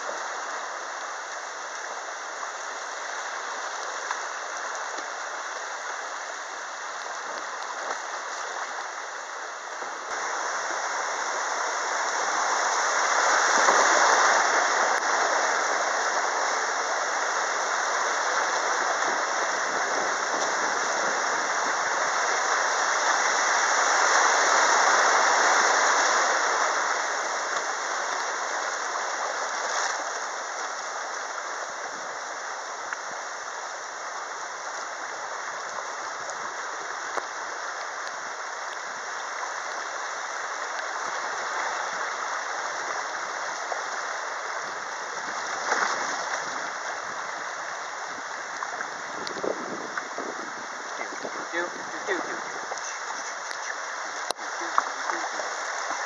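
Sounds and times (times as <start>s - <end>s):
river rapids rushing: 0.0s - 56.0s.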